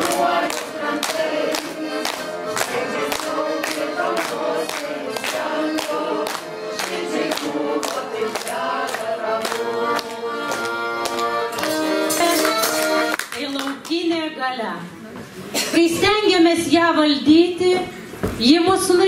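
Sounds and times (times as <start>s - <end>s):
vocal ensemble singing in harmony: 0.0s - 12.1s
accordion: 0.0s - 13.6s.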